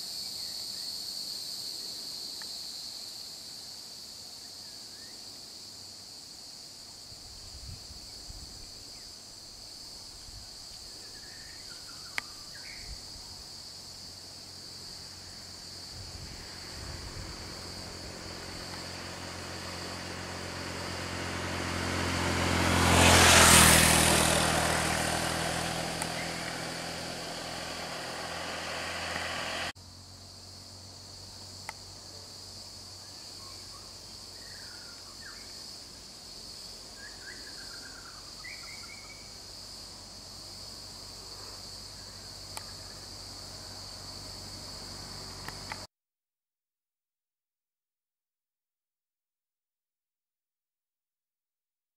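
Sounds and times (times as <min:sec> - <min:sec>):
high-pitched insect drone: 0:10.6 - 0:21.3
vehicle passing by: 0:15.0 - 0:30.1.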